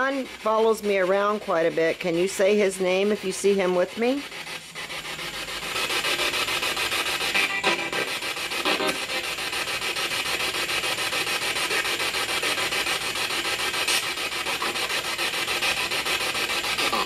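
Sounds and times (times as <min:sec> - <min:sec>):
radio static chopped rapidly: 0:07.2 - 0:09.5.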